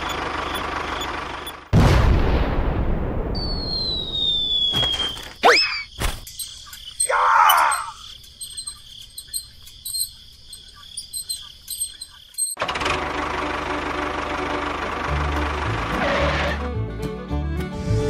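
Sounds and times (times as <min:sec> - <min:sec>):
falling whistle: 0:03.4 - 0:05.9
crickets chirping: 0:03.4 - 0:12.6
dense steady buzzing: 0:06.0 - 0:15.9.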